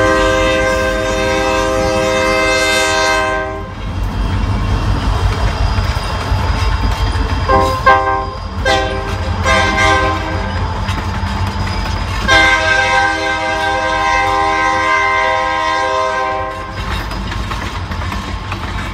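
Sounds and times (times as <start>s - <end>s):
train air horn blasts: 0.0s - 3.8s, 7.5s - 10.5s, 12.3s - 16.8s
rumble of train rolling past: 0.0s - 18.9s.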